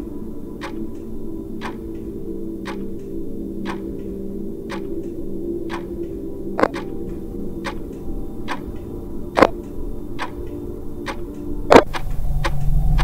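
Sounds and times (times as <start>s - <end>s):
low steady drone: 0.0s - 13.0s
clock-like ticking: 0.6s - 1.0s, 1.6s - 4.1s, 4.7s - 5.1s, 5.7s - 8.8s, 10.2s - 13.0s
low rumble: 11.0s - 13.0s.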